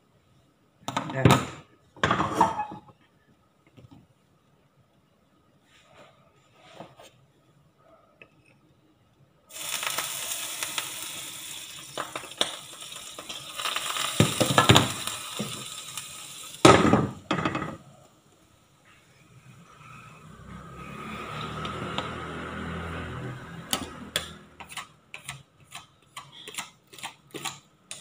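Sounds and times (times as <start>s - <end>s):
water sizzling in hot pan: 9.5s - 17.6s.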